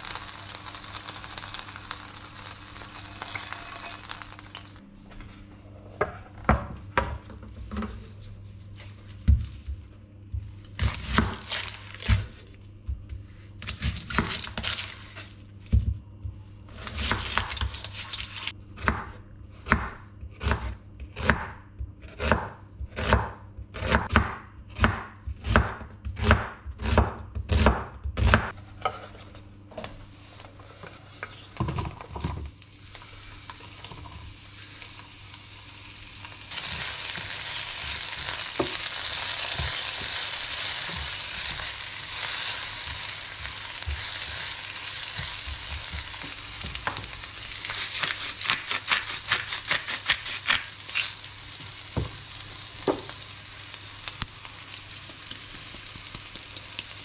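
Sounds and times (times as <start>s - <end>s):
onions sizzling in frying pan: 0.0s - 4.8s, 32.5s - 57.0s
knife chopping onion on board: 18.8s - 28.5s, 47.7s - 50.7s.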